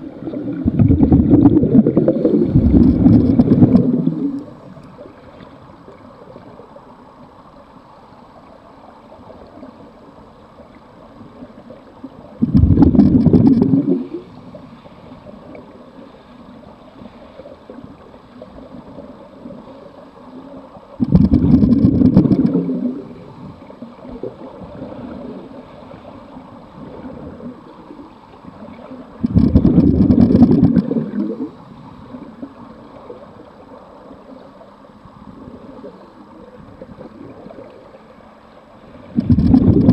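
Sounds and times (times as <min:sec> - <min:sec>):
underwater breath bubbling: 0:00.0 - 0:04.6, 0:12.4 - 0:14.4, 0:21.0 - 0:23.6, 0:29.2 - 0:32.3, 0:39.1 - 0:39.9.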